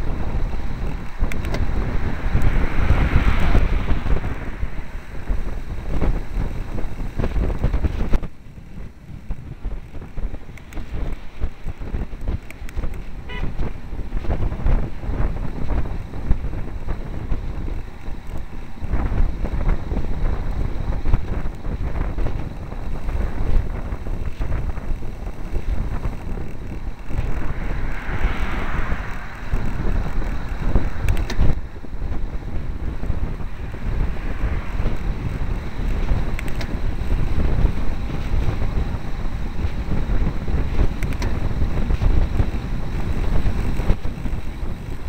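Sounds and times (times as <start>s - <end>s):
bicycle rattling: 0.0s - 45.0s
road rumble: 0.0s - 45.0s
wind buffeting microphone: 0.0s - 45.0s.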